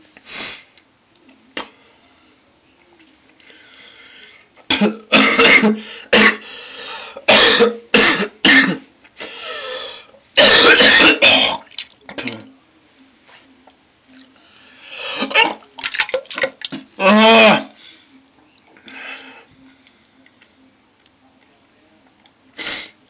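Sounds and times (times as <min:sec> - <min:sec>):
person retching and vomiting: 0:04.7 - 0:06.4, 0:07.2 - 0:08.8, 0:10.4 - 0:12.5, 0:15.2 - 0:17.7.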